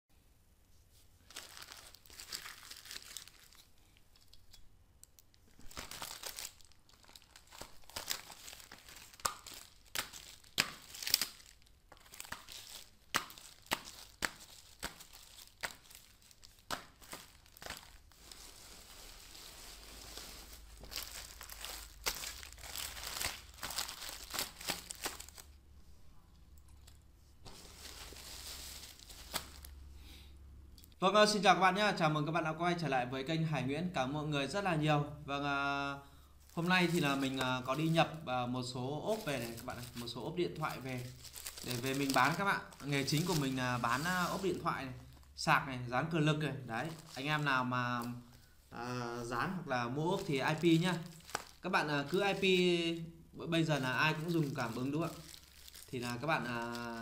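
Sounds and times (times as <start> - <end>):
plastic bags crinkling: 1.2 - 25.6, 26.8 - 29.8, 36.4 - 38.0, 38.7 - 45.4, 46.7 - 48.5, 50.0 - 52.8, 53.6 - 57.0.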